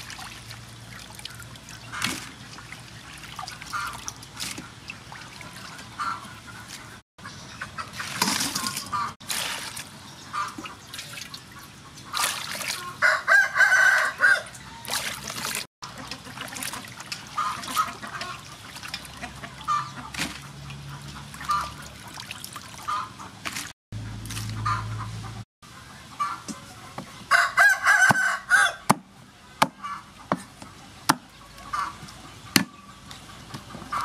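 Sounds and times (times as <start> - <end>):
water splashing in metal bowl: 0.0 - 6.8, 7.9 - 13.0, 14.8 - 24.7
chickens clucking: 3.7 - 9.2, 10.2 - 12.2, 12.8 - 21.9, 22.8 - 23.4, 24.5 - 34.0
rooster crowing: 13.0 - 15.0, 27.3 - 28.9.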